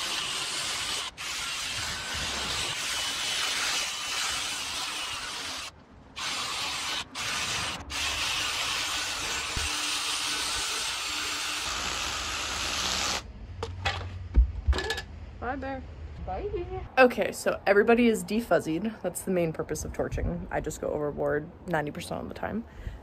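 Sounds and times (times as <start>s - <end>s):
drill brush scrubbing wood: 0.0s - 13.2s.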